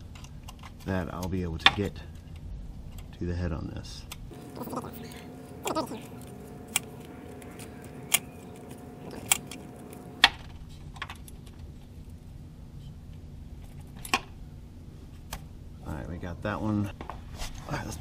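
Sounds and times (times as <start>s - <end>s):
faint steady hum: 4.1s - 18.0s.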